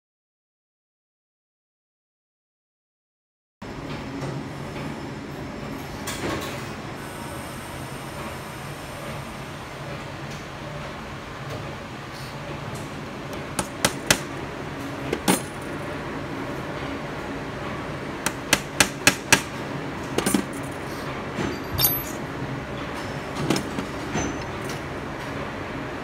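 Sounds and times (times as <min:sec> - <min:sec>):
faint metal knocks and clinks: 0:21.4 - 0:22.2.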